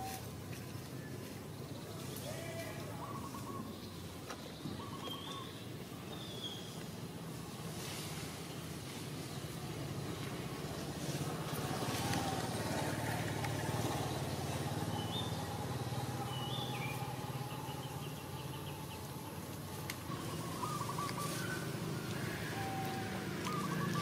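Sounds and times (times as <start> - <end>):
low motor hum: 6.8 - 24.0.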